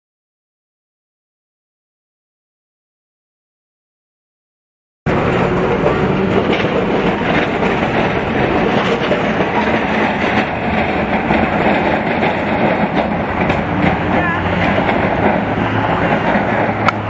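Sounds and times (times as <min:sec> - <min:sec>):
tram wheels on rails: 0:05.1 - 0:17.0.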